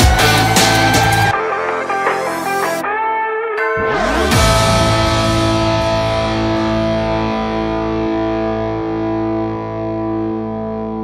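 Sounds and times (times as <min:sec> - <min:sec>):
held chord: 0:03.6 - 0:11.0.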